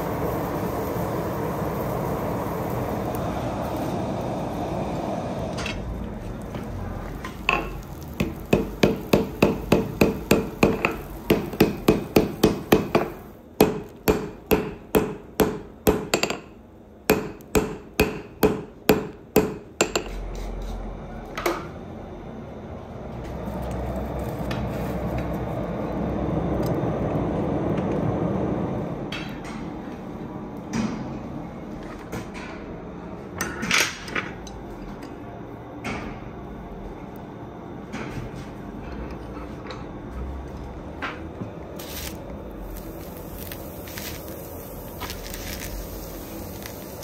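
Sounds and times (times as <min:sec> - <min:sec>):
hammer striking steel on anvil: 0:07.5 - 0:16.5, 0:17.1 - 0:20.2.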